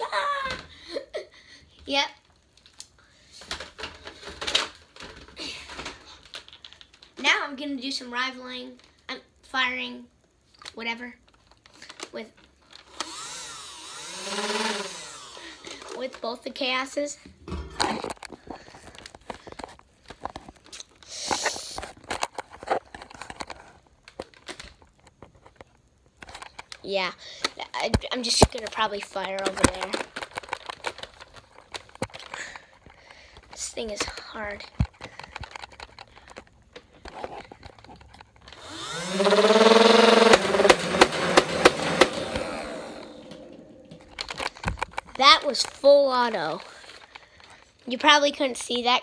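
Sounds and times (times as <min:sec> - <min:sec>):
plastic toys clicking and knocking: 0:02.2 - 0:07.4, 0:17.6 - 0:48.9
motor whine: 0:12.9 - 0:16.0, 0:38.5 - 0:44.3.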